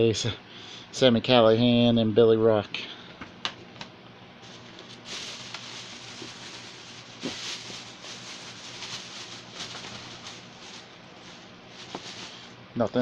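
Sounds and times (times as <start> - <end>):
paper and plastic rustling: 4.4 - 13.0.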